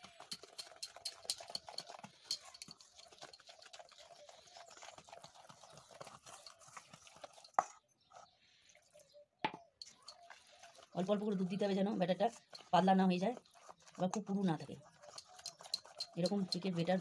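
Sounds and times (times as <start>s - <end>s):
whisk clinking against steel bowl: 0.0s - 5.0s, 13.6s - 17.0s.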